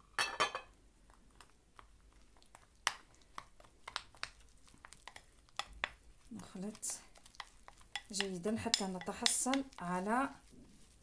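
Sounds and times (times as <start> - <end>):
spoon scraping paste in bowl: 2.5 - 11.0.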